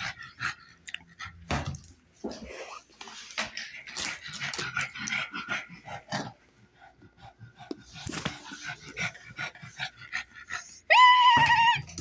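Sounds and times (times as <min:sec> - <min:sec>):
dog whining: 0:10.6 - 0:12.0.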